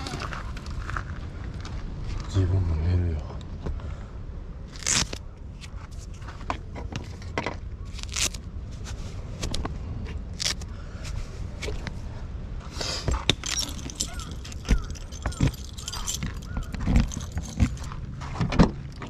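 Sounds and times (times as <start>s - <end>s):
rustling: 4.7s - 12.1s, 12.7s - 19.0s
gear scraping and knocking: 13.0s - 19.0s.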